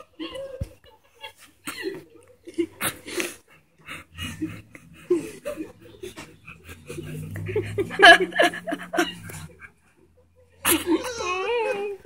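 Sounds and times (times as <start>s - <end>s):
people laughing: 0.0s - 12.0s.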